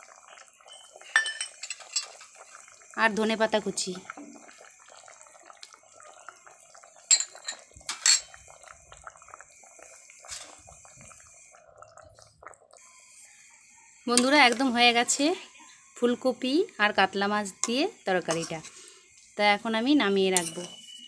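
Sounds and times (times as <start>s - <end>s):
curry bubbling: 0.0s - 21.0s
utensil clinking against pan: 1.1s - 2.2s, 7.1s - 8.4s, 20.4s - 21.0s.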